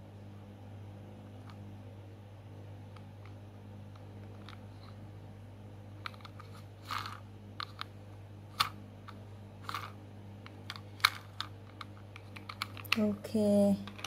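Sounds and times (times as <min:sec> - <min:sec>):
steady low hum: 0:00.0 - 0:14.0
plastic toy truck clicking and scraping: 0:06.0 - 0:07.9, 0:09.6 - 0:10.0, 0:10.7 - 0:13.1.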